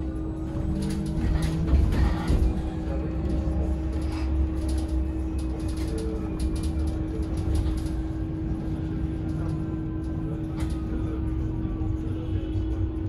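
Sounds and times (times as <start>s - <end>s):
bus rumbling: 0.0s - 13.0s
even electric hum: 0.0s - 13.0s
light clicks and rattles: 0.5s - 8.3s, 9.2s - 11.0s.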